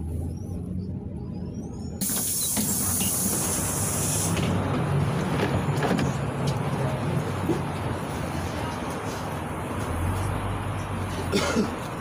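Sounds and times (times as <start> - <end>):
bus engine hum: 0.0 - 12.0
compressed air hiss: 2.0 - 4.4.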